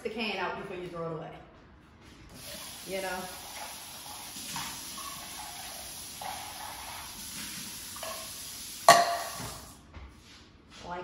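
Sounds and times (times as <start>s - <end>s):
faucet running into sink: 2.3s - 9.8s.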